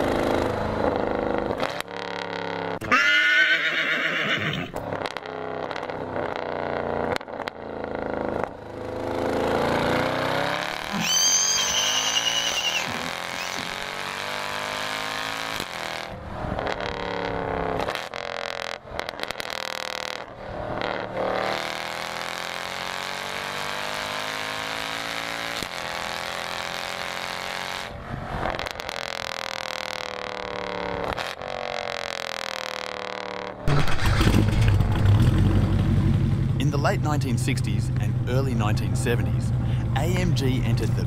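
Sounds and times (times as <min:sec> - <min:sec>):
car engine revving hard: 0:09.0 - 0:29.3
exhaust burst: 0:33.6 - 0:36.3.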